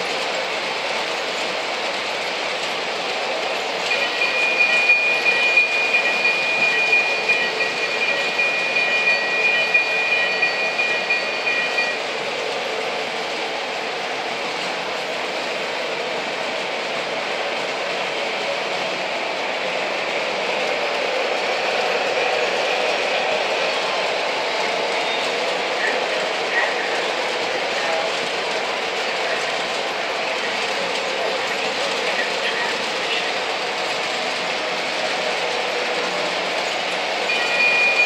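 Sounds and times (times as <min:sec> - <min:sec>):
model trains rolling and rattling: 0:00.0 - 0:13.2, 0:19.2 - 0:38.0
high steady squeal: 0:03.9 - 0:12.0, 0:37.2 - 0:38.0.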